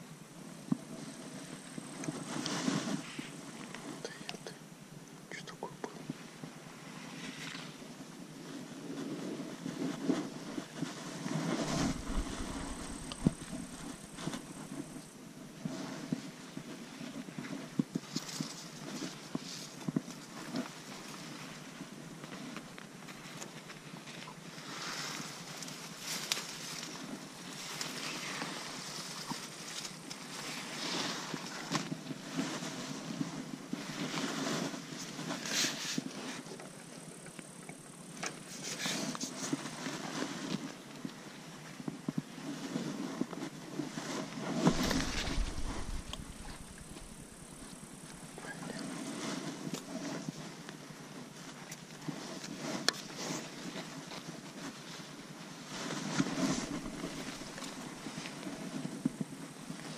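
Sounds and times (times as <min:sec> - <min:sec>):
rustling handling noise: 0:08.4 - 0:37.0, 0:38.2 - 0:59.9
wind buffeting microphone: 0:09.2 - 0:15.0, 0:44.5 - 0:48.4
handling rustling and knocks: 0:10.8 - 0:15.0, 0:43.2 - 0:48.4.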